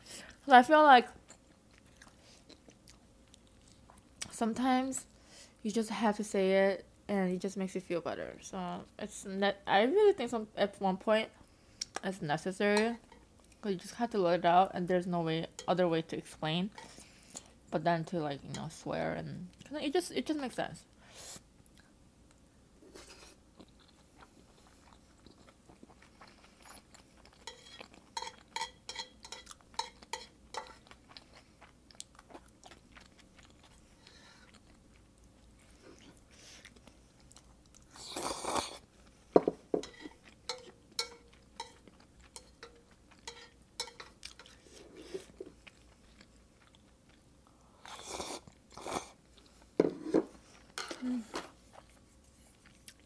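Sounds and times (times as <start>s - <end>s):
wet chewing clicks and smacks: 29.4s - 37.9s.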